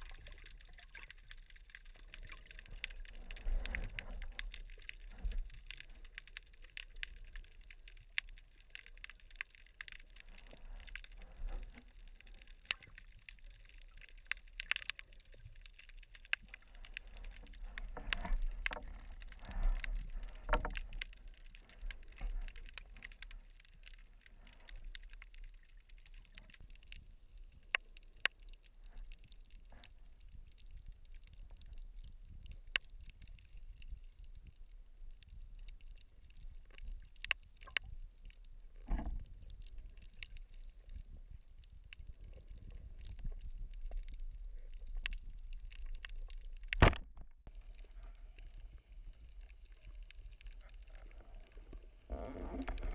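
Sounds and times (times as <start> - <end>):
underwater water swishing: 0.0 - 52.9
sharp underwater clicks: 35.3 - 38.0, 42.2 - 47.3.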